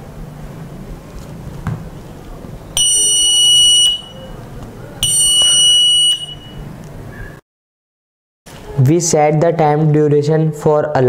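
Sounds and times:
high-pitched buzzer beeps: 2.8 - 4.3, 5.0 - 6.6.

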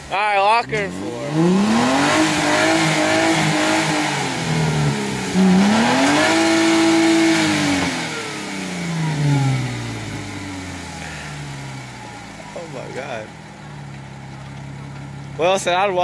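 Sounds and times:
engine revving under load: 0.6 - 15.3.

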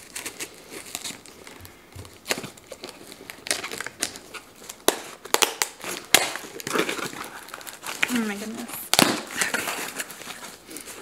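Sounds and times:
cardboard snapping: 2.0 - 8.2, 8.9 - 10.1.

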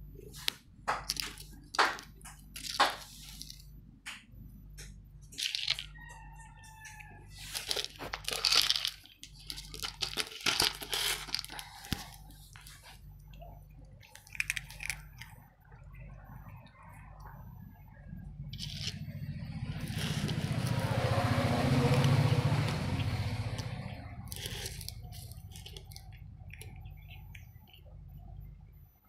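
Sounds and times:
plastic jar rolling on floor: 19.8 - 21.2.

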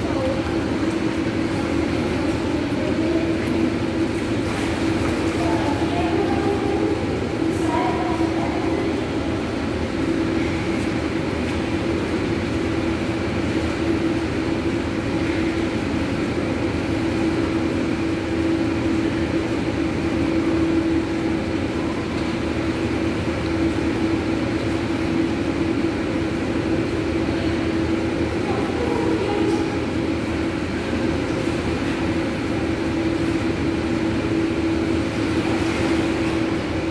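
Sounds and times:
machinery hum: 0.0 - 36.9.

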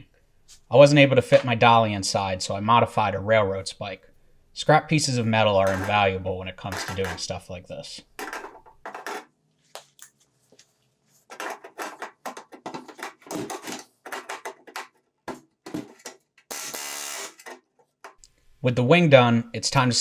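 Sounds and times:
pneumatic rivet hammer bursts: 16.5 - 17.6.

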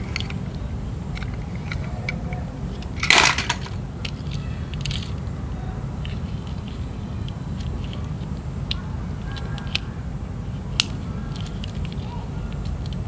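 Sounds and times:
toy cars clicking and knocking: 0.0 - 5.3, 6.0 - 9.9, 10.5 - 13.0
steady low hum: 0.0 - 13.0
loud plastic clatter: 1.2 - 5.2.

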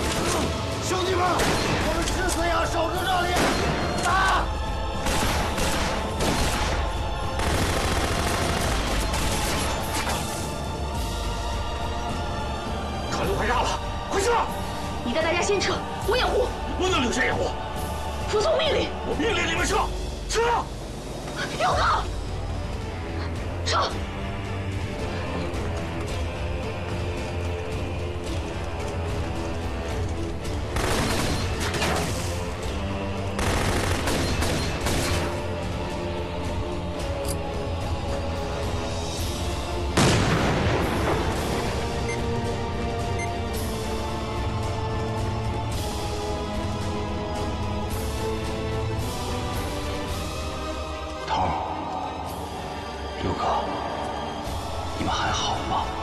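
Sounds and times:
dramatic music score: 0.0 - 56.0
rapid gunfire: 5.0 - 10.0, 30.7 - 32.4, 33.4 - 35.4
rapid gunshots: 5.0 - 10.2, 30.7 - 32.5, 33.3 - 35.4.

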